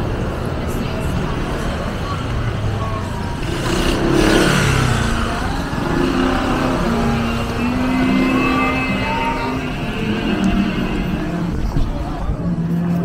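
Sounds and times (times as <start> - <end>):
street traffic hum: 0.0 - 13.0
vehicle passing by: 3.4 - 11.8.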